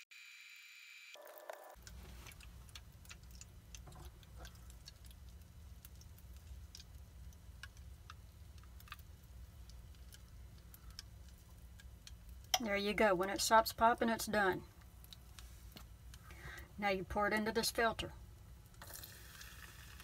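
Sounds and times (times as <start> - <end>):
butter popping and crackling: 1.8 - 16.6, 18.3 - 20.0
low steady hum: 1.8 - 20.0.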